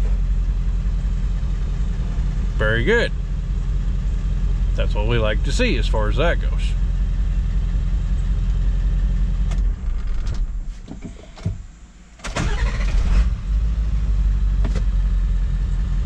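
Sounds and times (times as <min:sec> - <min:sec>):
diesel engine idling: 0:00.0 - 0:10.8, 0:11.7 - 0:16.0
engine restarting: 0:12.2 - 0:15.0.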